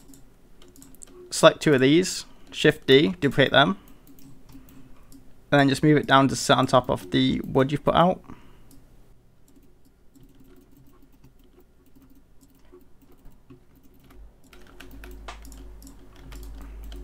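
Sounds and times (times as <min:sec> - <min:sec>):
computer keyboard keystrokes: 0:00.0 - 0:01.2, 0:09.5 - 0:17.0
low steady hum: 0:00.0 - 0:17.0.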